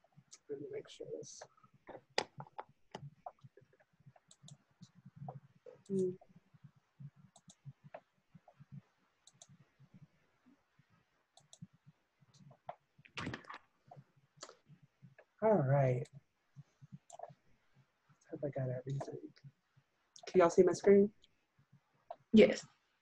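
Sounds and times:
computer mouse clicking: 0:04.2 - 0:04.6, 0:07.3 - 0:07.6, 0:09.2 - 0:09.6, 0:11.4 - 0:11.7.

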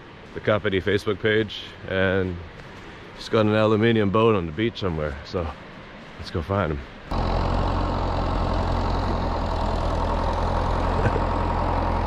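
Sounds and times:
vehicle engine idling: 0:07.1 - 0:12.0.

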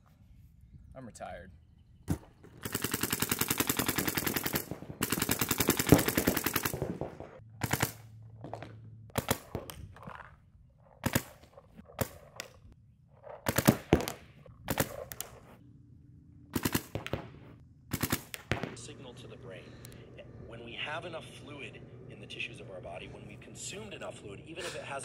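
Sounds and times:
paintball marker firing: 0:02.1 - 0:10.2, 0:11.0 - 0:12.6, 0:13.4 - 0:15.6, 0:16.5 - 0:18.9.

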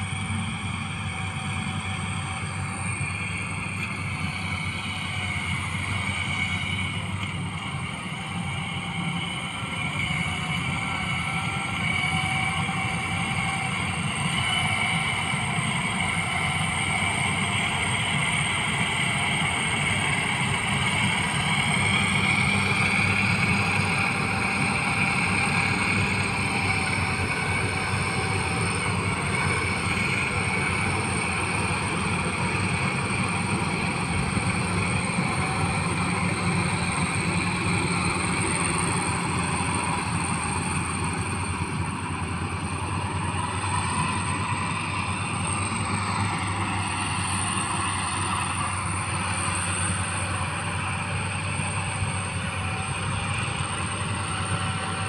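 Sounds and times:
combine harvester engine rumble: 0:00.0 - 0:55.0
high steady whine: 0:00.0 - 0:55.0.

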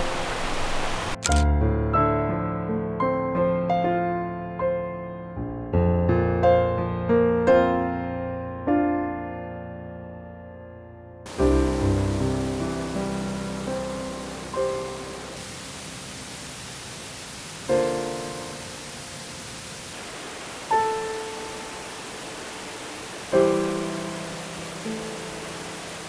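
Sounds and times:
steady rushing hiss: 0:00.0 - 0:01.4, 0:11.3 - 0:26.0
slow piano chords: 0:00.0 - 0:26.0.

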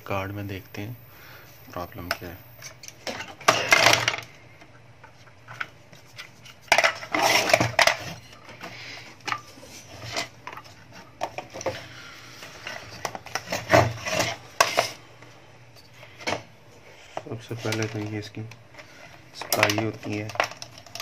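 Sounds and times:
objects clattering on tabletop: 0:02.8 - 0:04.3, 0:06.6 - 0:11.8.

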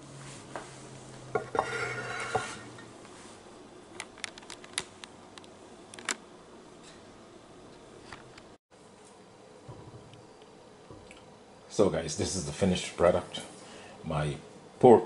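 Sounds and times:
dishes scraping and clattering: 0:01.3 - 0:02.9.

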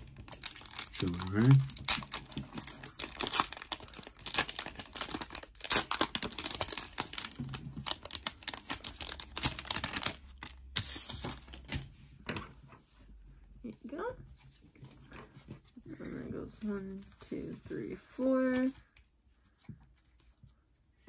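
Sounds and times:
foil wrapper tearing and crinkling: 0:00.0 - 0:11.8.

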